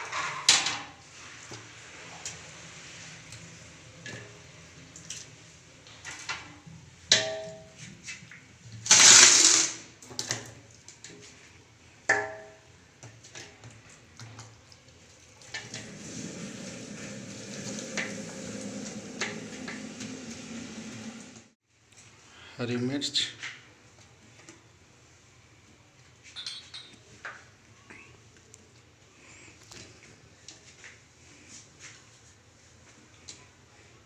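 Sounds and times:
metal pot ringing: 7.1s - 7.8s.

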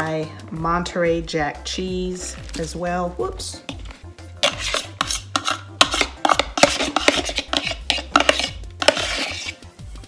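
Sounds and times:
cheese package rustling: 2.3s - 2.8s.

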